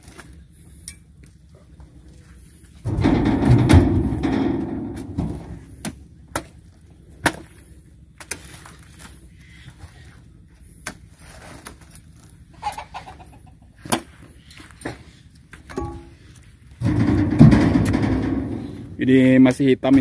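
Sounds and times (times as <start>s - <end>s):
fruit clattering into truck bed: 2.8s - 6.6s, 16.8s - 19.0s
knocks on steel truck bed: 2.9s - 5.8s, 16.8s - 19.0s.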